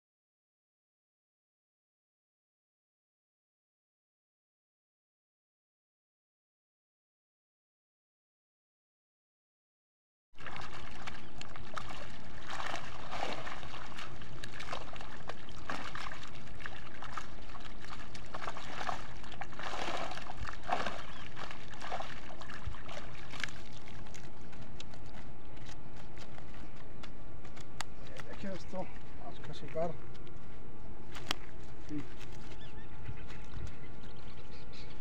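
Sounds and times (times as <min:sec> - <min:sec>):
water splashing off a net: 0:10.4 - 0:24.9.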